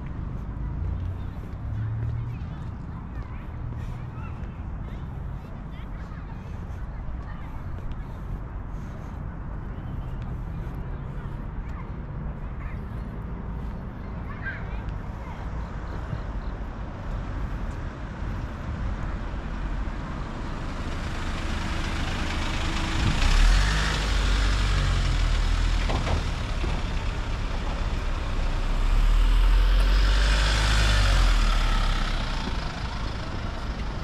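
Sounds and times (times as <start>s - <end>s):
road traffic rumble: 0.0s - 34.0s
vehicle passing close: 17.3s - 34.0s.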